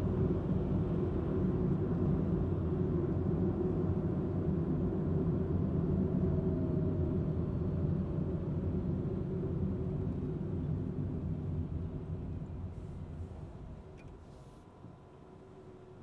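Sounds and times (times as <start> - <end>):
car engine and road rumble: 9.6 - 14.6.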